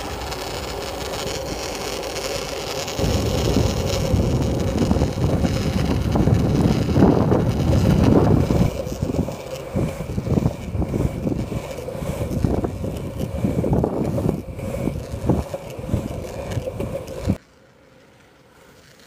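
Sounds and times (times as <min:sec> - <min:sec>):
wheels rolling over pavement: 0:00.0 - 0:19.0
wind buffeting microphone: 0:03.0 - 0:17.4.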